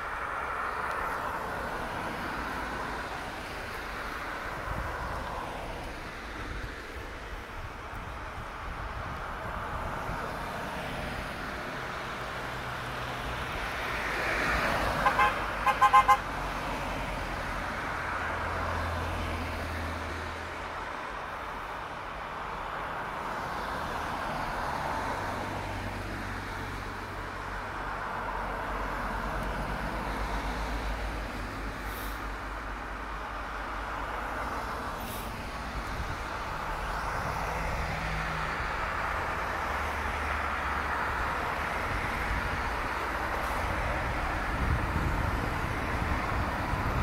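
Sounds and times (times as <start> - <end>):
tyres hissing on wet road: 0.0 - 47.0
car horn toots: 15.0 - 16.2.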